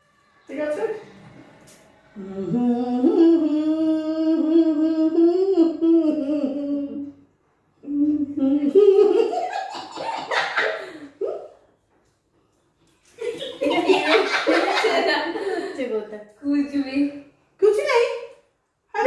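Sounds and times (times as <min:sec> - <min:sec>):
woman humming: 0:02.2 - 0:07.2, 0:07.8 - 0:09.0.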